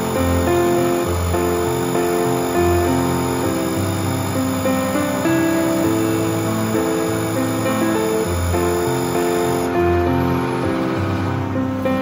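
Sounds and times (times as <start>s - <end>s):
instrumental music: 0.0s - 12.0s.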